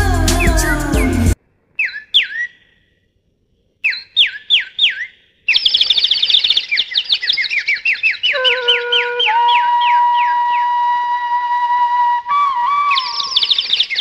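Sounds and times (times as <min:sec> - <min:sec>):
bird-call whistle chirps: 0:01.8 - 0:02.8, 0:03.8 - 0:14.0
high twittering: 0:12.4 - 0:14.0.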